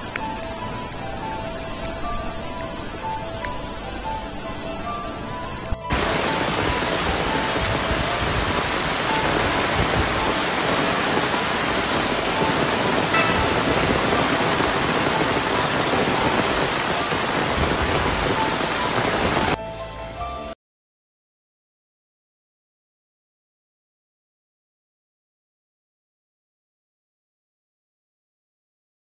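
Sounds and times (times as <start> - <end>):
background music: 0.0 - 20.6
heavy rain pouring: 5.9 - 19.6.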